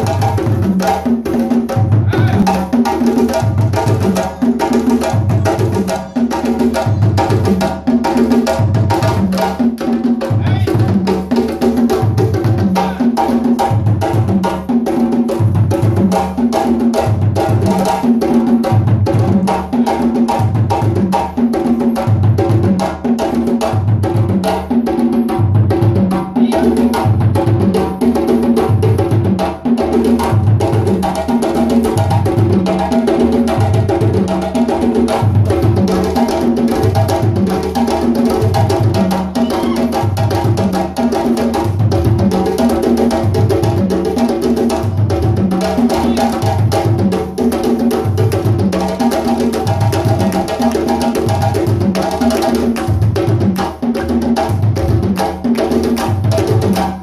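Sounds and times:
fast hand drum strokes: 0.0 - 57.0
deep bass drum beat: 1.7 - 2.7.

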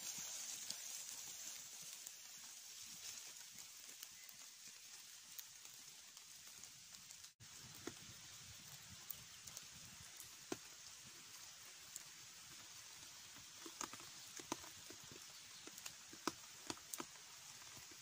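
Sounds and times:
campfire crackling: 0.0 - 18.0
faint steady hiss: 0.0 - 18.0.

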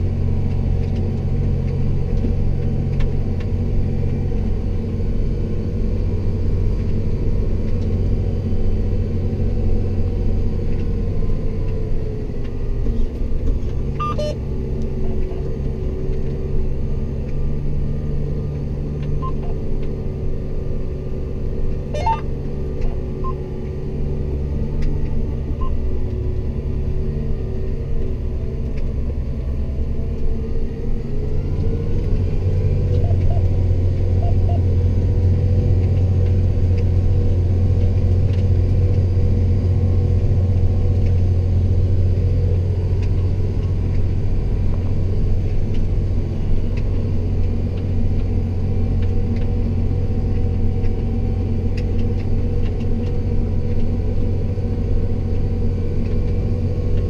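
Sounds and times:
tractor diesel engine drone: 0.0 - 57.0
faint short beeps: 14.0 - 14.4, 19.2 - 19.5, 22.0 - 22.3.

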